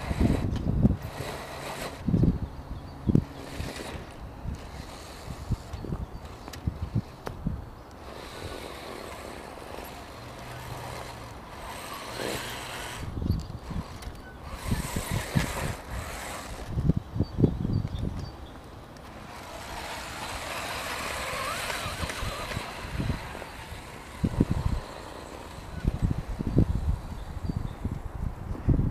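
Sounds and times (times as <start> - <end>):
electric motor whir: 0.0 - 7.3, 7.9 - 17.0, 19.0 - 28.0
wind rumble on microphone: 0.0 - 28.9.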